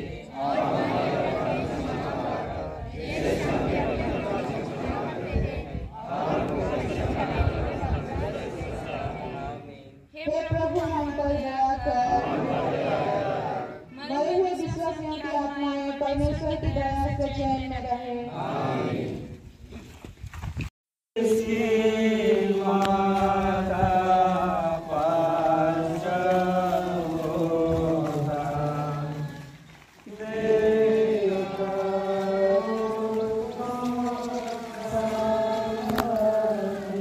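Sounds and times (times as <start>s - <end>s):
group singing a hymn: 0.0s - 14.8s, 18.0s - 19.6s, 21.2s - 37.0s.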